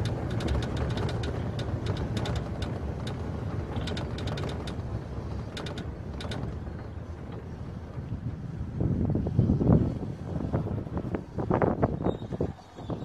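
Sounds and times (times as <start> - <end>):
sharp clicks and rattles: 0.0 - 8.1
vehicle on gravel road: 0.0 - 13.0.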